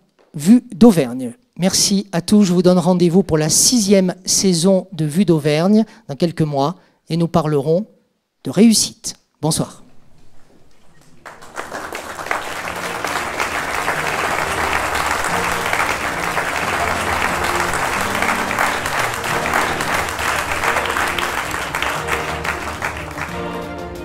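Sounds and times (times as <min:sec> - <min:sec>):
audience applause: 0:11.2 - 0:24.0
music playing: 0:11.9 - 0:24.0.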